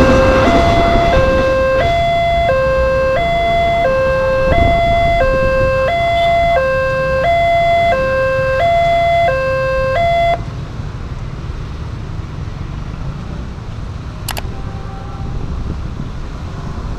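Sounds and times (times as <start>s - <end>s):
two-tone crossing alarm: 0.0s - 10.5s
motorbike traffic moving off: 0.0s - 16.9s.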